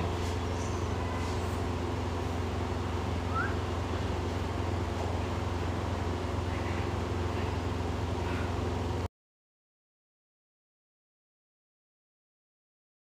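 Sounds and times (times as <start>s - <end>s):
low mechanical hum: 0.0s - 9.1s.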